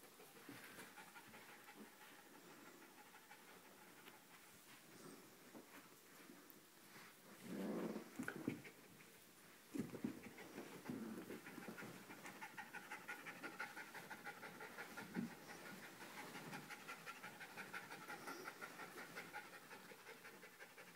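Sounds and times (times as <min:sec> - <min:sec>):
small dog panting: 0:00.0 - 0:04.5, 0:09.8 - 0:20.9.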